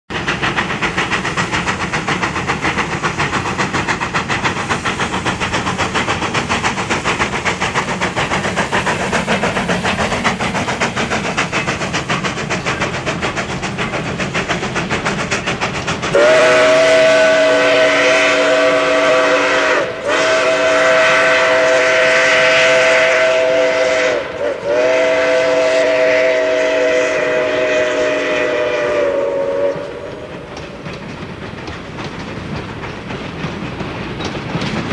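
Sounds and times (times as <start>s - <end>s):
steam locomotive running: 0.1s - 34.9s
steam whistle blasts: 16.1s - 30.5s.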